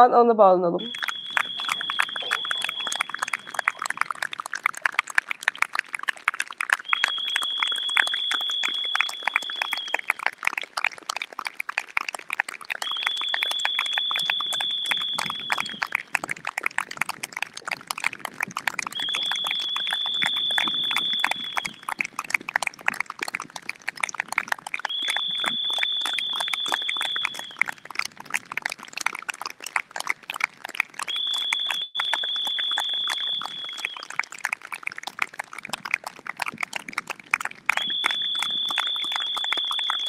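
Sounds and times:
high steady tone: 0:00.7 - 0:03.8
crowd applauding: 0:00.8 - 0:40.0.

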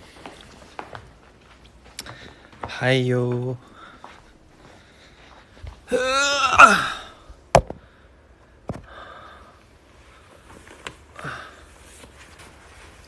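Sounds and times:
faint breaths: 0:01.8 - 0:02.8, 0:03.6 - 0:05.9, 0:07.0 - 0:12.9.

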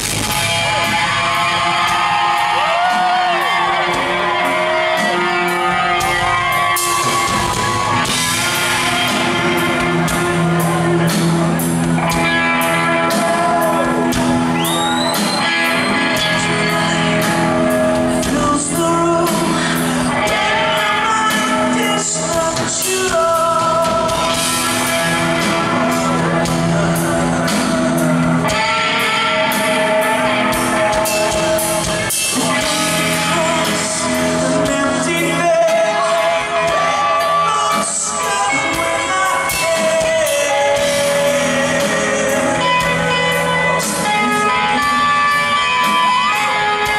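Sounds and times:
live rock band playing: 0:00.0 - 0:46.9
person singing: 0:01.2 - 0:46.9.

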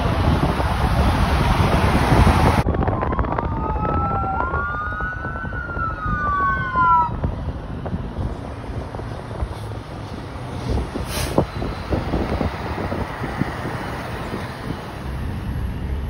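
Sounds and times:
fire engine rumbling past: 0:00.0 - 0:16.0
wind on microphone: 0:00.0 - 0:16.0
electronic sirens wailing: 0:02.4 - 0:08.0.

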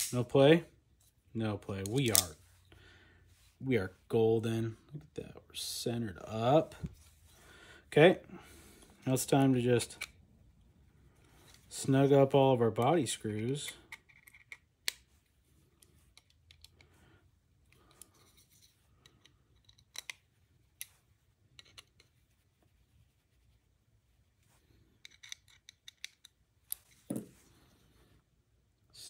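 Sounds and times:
screwdriver clicks and scrapes: 0:01.8 - 0:02.3, 0:13.4 - 0:15.0, 0:17.9 - 0:20.2, 0:21.5 - 0:22.1, 0:25.0 - 0:27.1.

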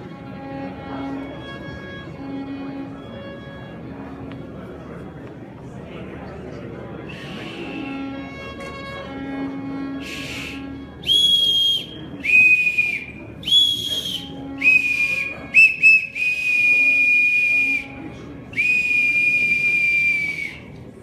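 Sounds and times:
small whistle blown: 0:07.0 - 0:08.1, 0:10.0 - 0:20.8.

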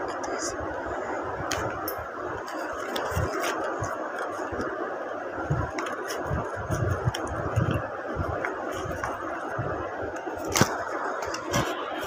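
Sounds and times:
steady background hiss: 0:00.0 - 0:12.0
paper rustling: 0:02.4 - 0:04.7, 0:05.5 - 0:09.6, 0:10.2 - 0:12.0.

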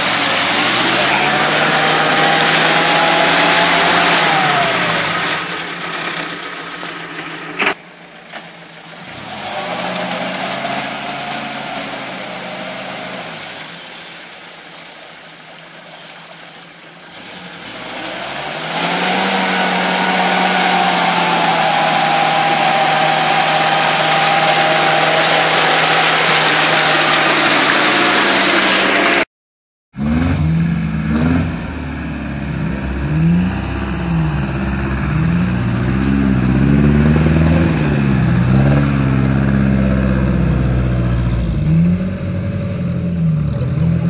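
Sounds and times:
off-road vehicle engine in mud: 0:00.0 - 0:29.3, 0:29.9 - 0:44.0.

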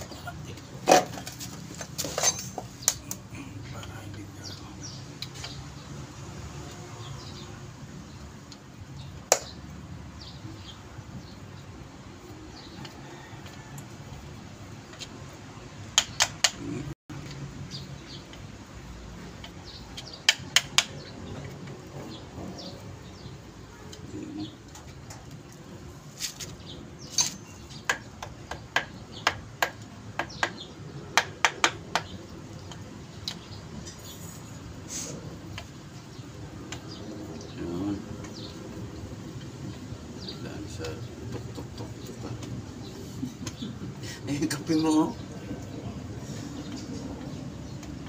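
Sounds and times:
sharp taps and clicks on metal parts: 0:00.9 - 0:03.3, 0:09.3 - 0:09.6, 0:15.8 - 0:22.0, 0:24.6 - 0:34.0, 0:36.6 - 0:37.0, 0:43.4 - 0:43.6, 0:46.6 - 0:48.0.

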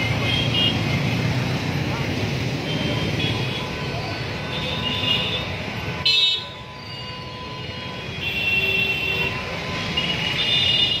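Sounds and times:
vehicle horns: 0:00.0 - 0:01.0, 0:02.6 - 0:11.0
motorbike and car engines: 0:00.0 - 0:06.0.

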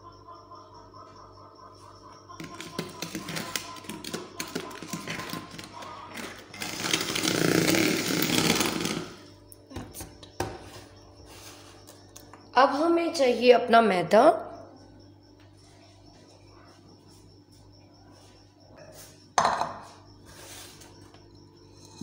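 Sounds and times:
electric hand mixer whirring: 0:06.5 - 0:09.2.

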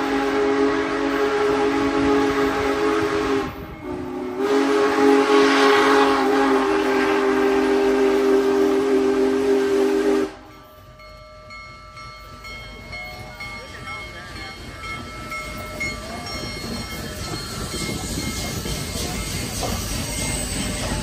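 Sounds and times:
steam whistle chord: 0:00.0 - 0:10.7
steam hiss: 0:00.0 - 0:11.1, 0:13.7 - 0:21.0
steam locomotive rumble: 0:00.0 - 0:21.0.

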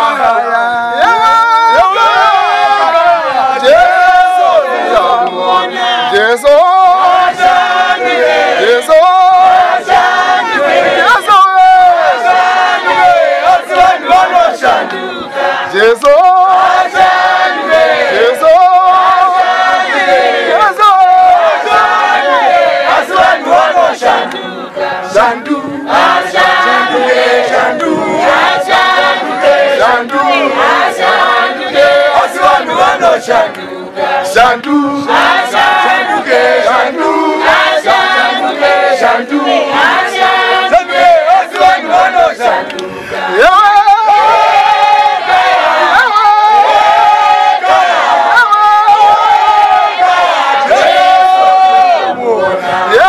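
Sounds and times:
choir singing: 0:01.7 - 0:53.0.

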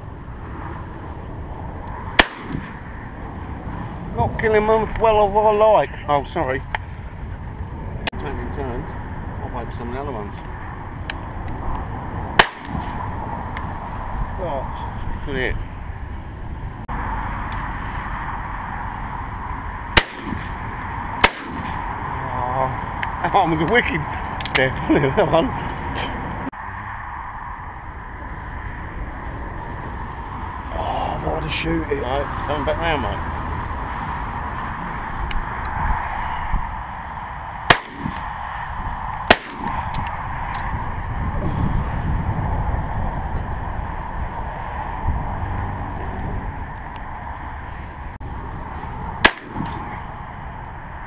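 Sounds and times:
shotgun shots: 0:02.2 - 0:02.8, 0:12.4 - 0:13.0, 0:20.0 - 0:20.6, 0:21.2 - 0:21.9, 0:37.7 - 0:38.2, 0:39.3 - 0:39.9, 0:49.2 - 0:50.0.

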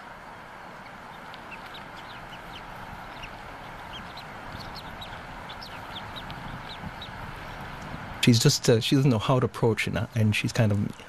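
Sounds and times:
eagles chirping: 0:00.0 - 0:08.2
low background noise: 0:00.0 - 0:11.0.

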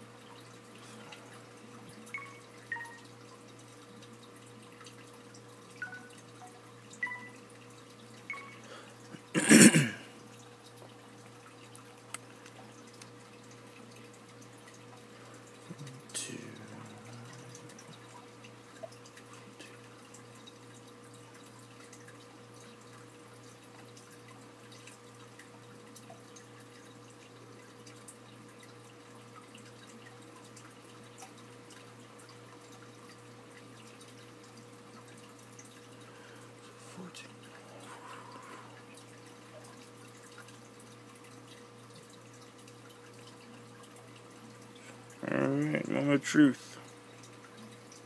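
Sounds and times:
steady low hum: 0:00.0 - 0:22.0, 0:34.5 - 0:41.6.

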